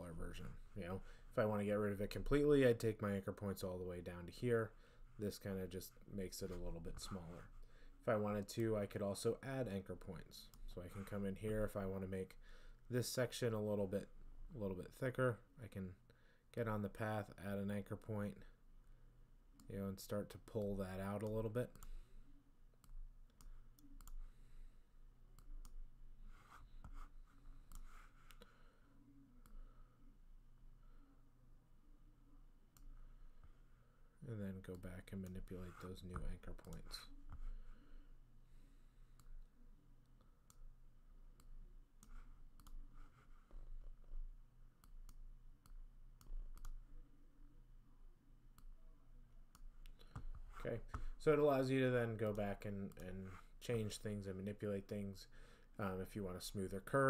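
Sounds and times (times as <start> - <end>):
low steady hum: 0.0 - 57.0
computer mouse clicks: 22.8 - 24.3, 27.7 - 28.5, 41.4 - 42.9, 44.8 - 46.8.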